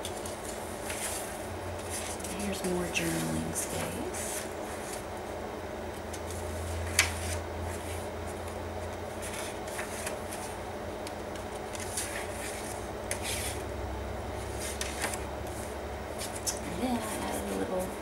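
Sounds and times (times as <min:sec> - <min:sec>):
paper pages swishing and rustling: 0:00.0 - 0:05.1, 0:06.2 - 0:10.6, 0:11.3 - 0:13.6, 0:14.4 - 0:16.6
steady low hum: 0:00.0 - 0:18.0.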